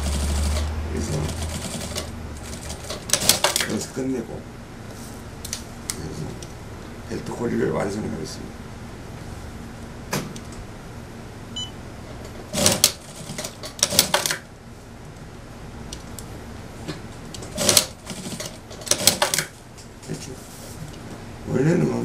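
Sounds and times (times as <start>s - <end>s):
sewing machine stitching: 0.0s - 3.8s, 12.5s - 14.4s, 17.4s - 19.5s.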